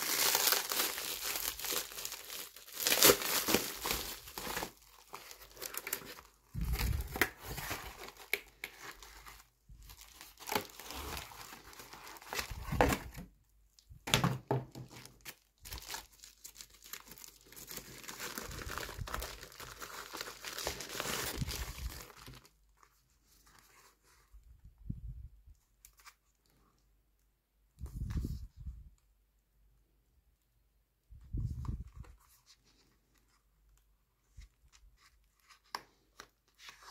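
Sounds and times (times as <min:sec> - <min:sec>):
plastic packaging crinkling: 0:00.0 - 0:13.2, 0:14.9 - 0:22.9
soft handling sounds: 0:20.7 - 0:29.1, 0:31.1 - 0:36.9.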